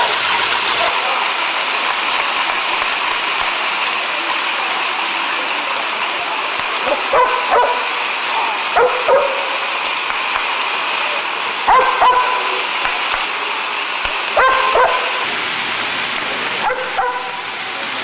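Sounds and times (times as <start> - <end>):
dog barking: 6.8 - 8.0, 8.8 - 9.6, 11.7 - 12.5, 14.4 - 15.3, 16.6 - 17.4.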